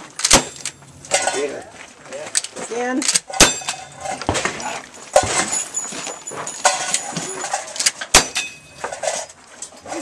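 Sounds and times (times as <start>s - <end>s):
shotgun shots: 0.2s - 0.6s.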